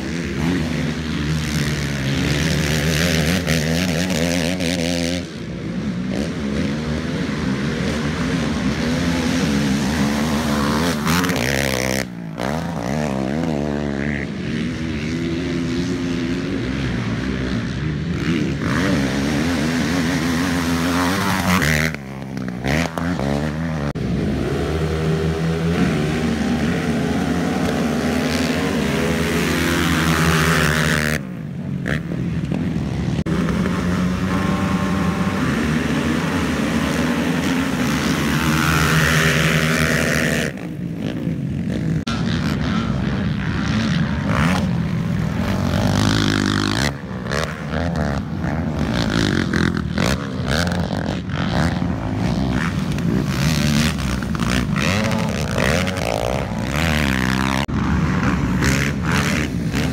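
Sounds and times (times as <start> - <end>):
atv engines revving: 0.0 - 59.9.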